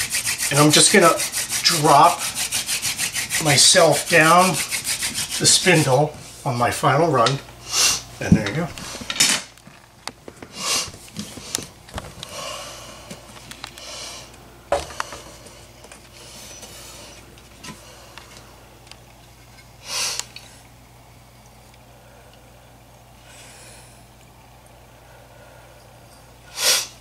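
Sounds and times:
man breathing heavily: 0:12.2 - 0:18.6, 0:23.2 - 0:24.1, 0:24.9 - 0:27.0.

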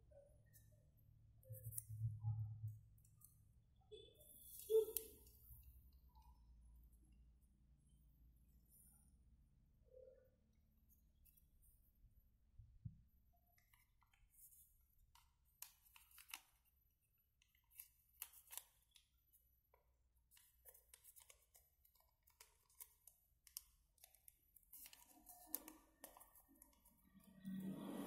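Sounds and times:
paper crinkling and rustling: 0:13.6 - 0:16.8, 0:17.4 - 0:19.1, 0:20.3 - 0:27.0.

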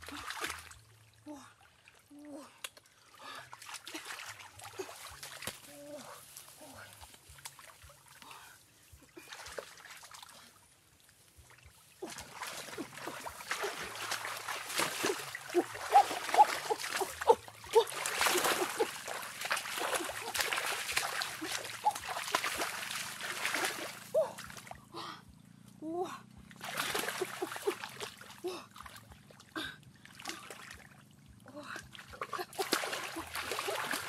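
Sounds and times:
water splashing in stream: 0:02.7 - 0:06.1, 0:09.2 - 0:24.8, 0:26.6 - 0:31.3, 0:31.9 - 0:34.0.

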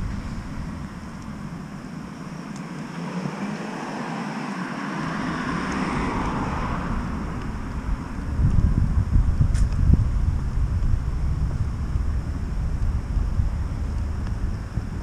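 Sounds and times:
wind rumble on microphone: 0:00.0 - 0:02.5, 0:05.0 - 0:15.0
car passing by: 0:02.7 - 0:08.4.

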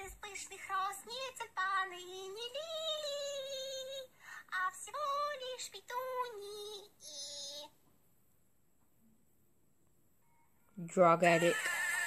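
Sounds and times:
high-pitched voice singing: 0:00.0 - 0:07.8.

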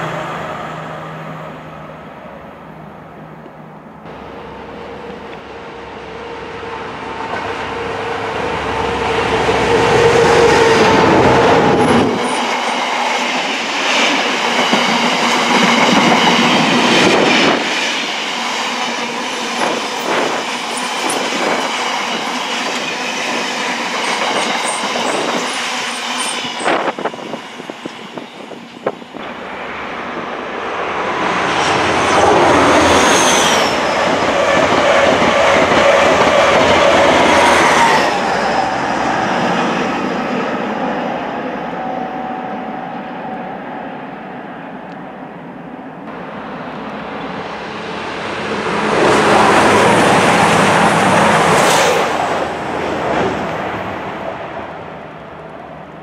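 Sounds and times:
diesel locomotive engine: 0:00.0 - 0:56.0
high-speed train approaching: 0:00.0 - 0:56.0
high-pitched wheel squeal: 0:31.6 - 0:39.1.

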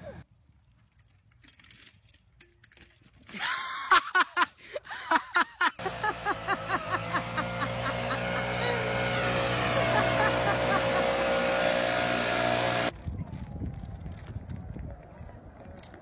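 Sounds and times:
person laughing: 0:03.3 - 0:11.6
leaf blower engine running: 0:05.8 - 0:12.9.

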